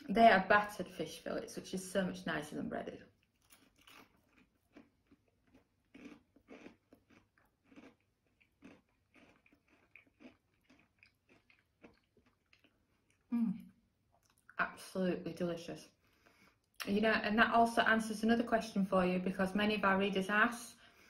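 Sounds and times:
person chewing crispy food: 0:03.2 - 0:13.4.

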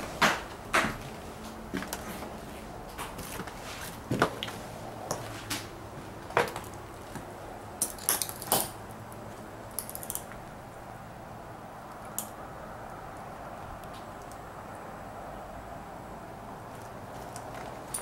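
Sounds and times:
footsteps on debris: 0:00.0 - 0:07.3
fragments clinking and cracking: 0:07.8 - 0:08.8.

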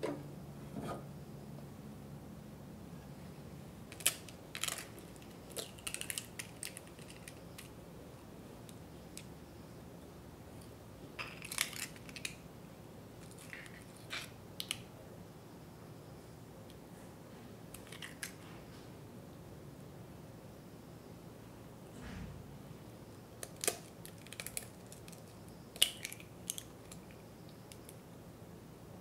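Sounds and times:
eggshells cracking: 0:03.9 - 0:07.8, 0:11.2 - 0:12.4, 0:23.4 - 0:28.0.

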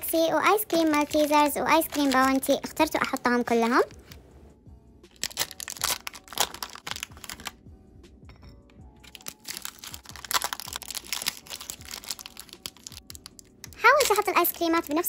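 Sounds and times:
plastic wrappers crinkling and tearing: 0:00.0 - 0:04.2, 0:05.1 - 0:07.6, 0:09.0 - 0:15.0.

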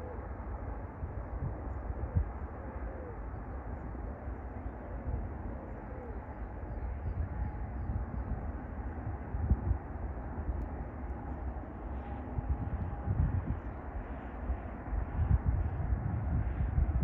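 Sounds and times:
steady low rumble: 0:00.0 - 0:17.0
dove cooing: 0:02.1 - 0:03.3, 0:04.8 - 0:06.5.

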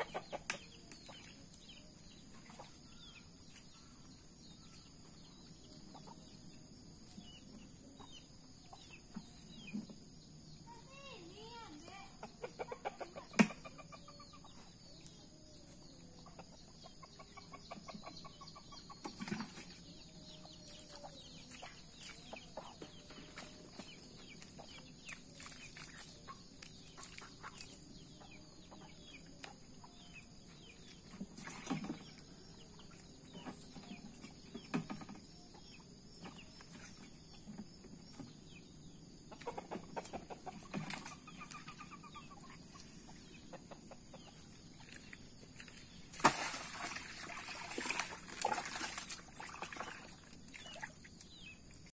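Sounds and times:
chickens clucking: 0:00.0 - 0:01.5, 0:12.1 - 0:14.8, 0:15.7 - 0:19.7, 0:20.4 - 0:36.5, 0:37.3 - 0:45.7.

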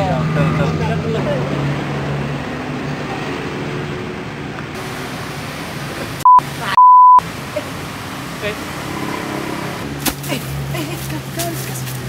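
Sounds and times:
street background noise: 0:00.0 - 0:12.0
censor bleep tone: 0:06.2 - 0:07.2.

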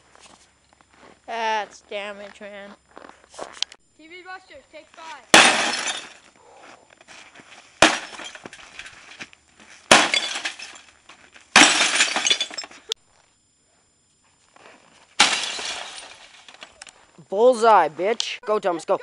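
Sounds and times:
television being smashed: 0:05.3 - 0:06.2, 0:07.8 - 0:08.5, 0:09.9 - 0:10.8, 0:11.5 - 0:12.7, 0:15.2 - 0:16.6
breaking glass and rattling debris: 0:05.4 - 0:06.2, 0:07.8 - 0:08.6, 0:09.9 - 0:10.9, 0:11.6 - 0:12.7, 0:15.2 - 0:16.5.

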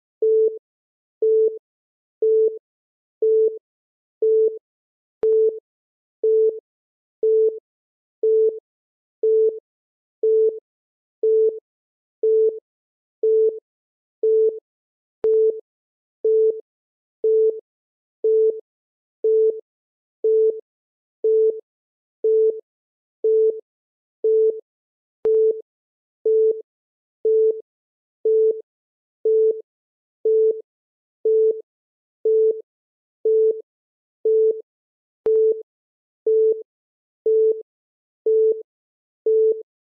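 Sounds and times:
timer beeps: 0:06.2 - 0:06.6.

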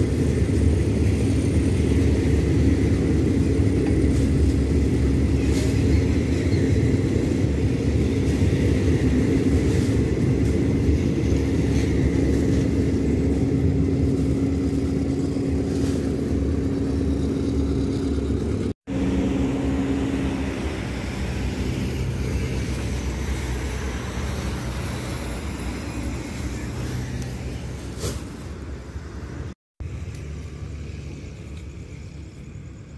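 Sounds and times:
diesel train rumbling: 0:00.0 - 0:32.9.

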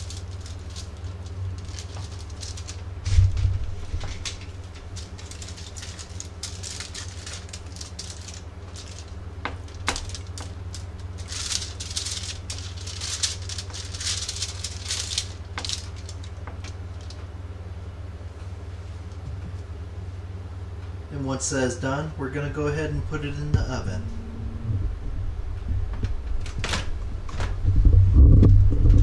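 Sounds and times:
aluminum foil crinkling: 0:00.0 - 0:17.2
steady low hum: 0:00.0 - 0:29.0.

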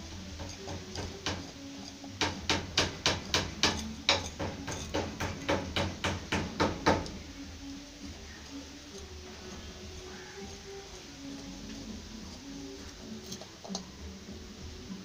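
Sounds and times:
hand tool clicking on bolt: 0:00.1 - 0:07.2.

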